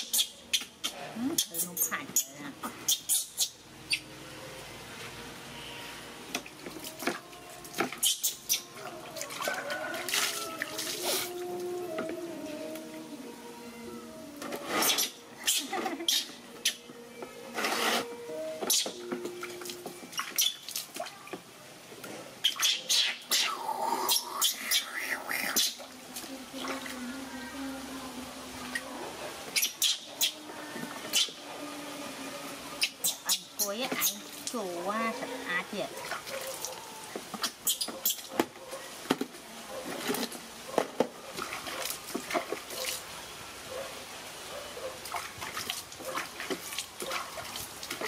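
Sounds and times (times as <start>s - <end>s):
monkey squeaking: 0.0s - 4.1s, 8.0s - 8.7s, 14.8s - 16.8s, 18.7s - 19.0s, 20.2s - 20.7s, 22.4s - 25.8s, 29.5s - 30.4s, 31.1s - 31.4s, 32.8s - 34.3s, 37.4s - 38.3s
water splashing and dripping: 6.2s - 13.0s, 18.5s - 27.4s, 28.1s - 31.6s, 32.4s - 48.0s.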